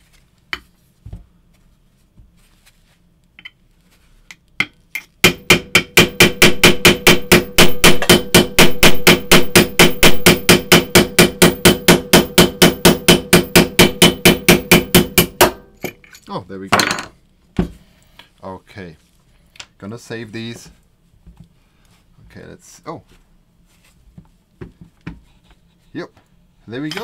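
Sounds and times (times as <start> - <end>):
hammer striking metal punch: 4.6 - 16.0.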